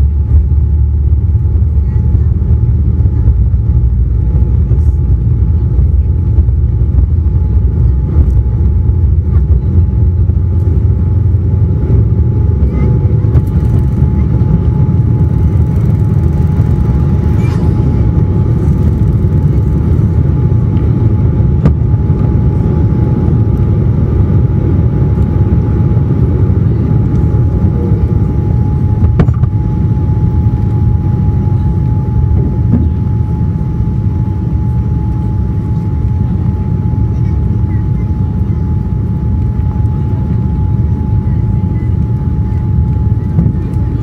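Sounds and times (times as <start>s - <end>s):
jet engines rumbling: 0.0s - 44.0s
thin steady whine: 0.0s - 44.0s.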